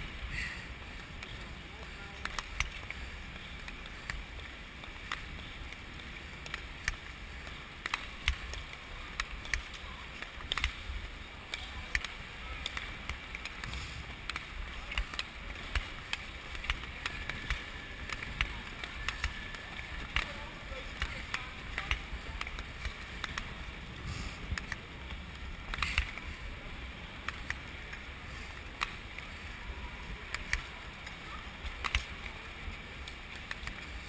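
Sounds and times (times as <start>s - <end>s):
sharp skate clicks: 0.1s - 34.0s
air on moving microphone: 12.1s - 34.0s.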